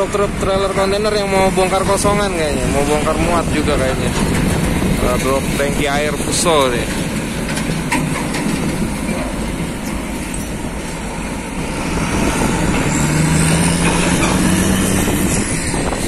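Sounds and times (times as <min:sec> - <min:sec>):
diesel trucks passing: 0:00.0 - 0:16.0
wind buffeting microphone: 0:00.0 - 0:16.0
steady truck engine note: 0:11.5 - 0:16.0.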